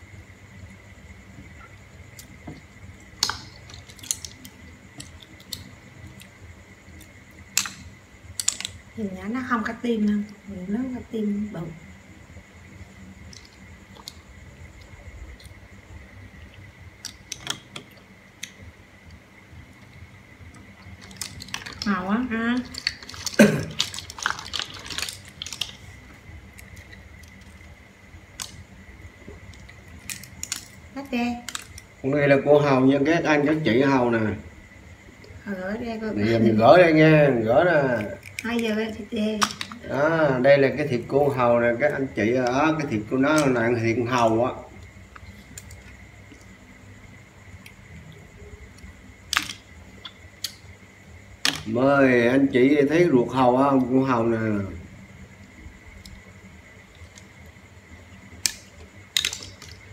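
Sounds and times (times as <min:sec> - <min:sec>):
faint steady high whine: 0:00.0 - 0:59.9
mussel shells clicking and cracking: 0:02.1 - 0:09.0, 0:13.2 - 0:15.6, 0:16.4 - 0:32.1, 0:37.8 - 0:40.0, 0:41.1 - 0:46.8, 0:48.6 - 0:51.8, 0:55.8 - 0:57.6, 0:58.2 - 0:59.9.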